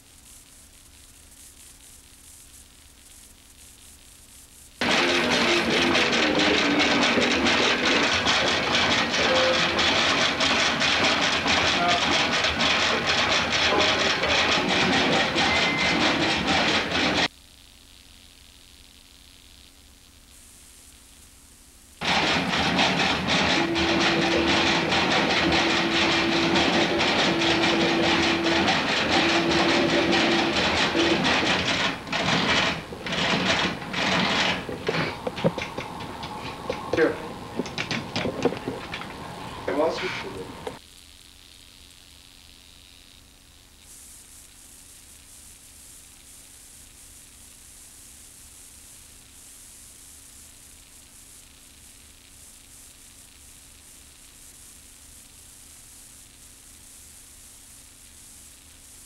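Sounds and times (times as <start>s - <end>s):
videotape hiss: 0.0s - 59.0s
rhythmic machine-like whooshing: 4.8s - 17.3s, 22.0s - 40.8s
light clicks and knocks: 22.0s - 39.7s.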